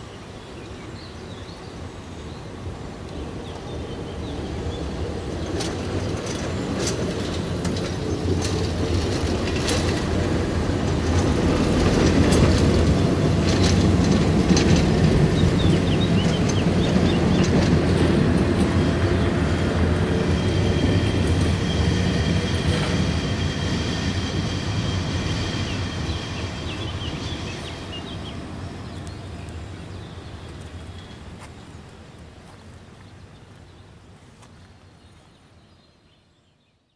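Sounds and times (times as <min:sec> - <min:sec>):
tram passing on tracks: 0:00.0 - 0:35.7.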